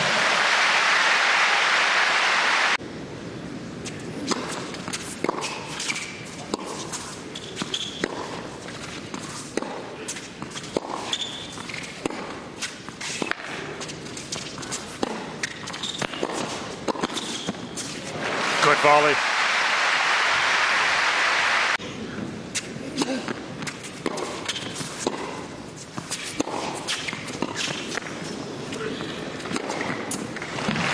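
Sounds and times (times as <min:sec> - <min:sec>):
crowd applause: 0:00.0 - 0:02.8, 0:18.1 - 0:21.8
rackets striking tennis ball: 0:03.9 - 0:18.2, 0:22.6 - 0:30.9
tennis ball bouncing: 0:04.2 - 0:18.0, 0:22.6 - 0:28.5, 0:29.4 - 0:30.9.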